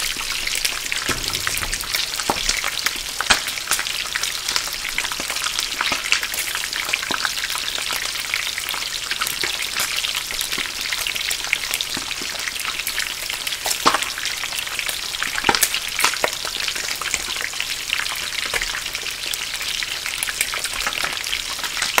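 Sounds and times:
loud oil pop: 1.1 - 3.8.

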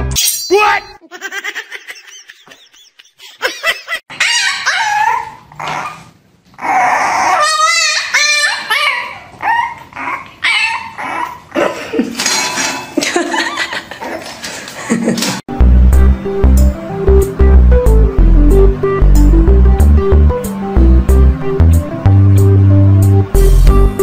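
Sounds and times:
puppy yipping and whining: 4.1 - 11.5.

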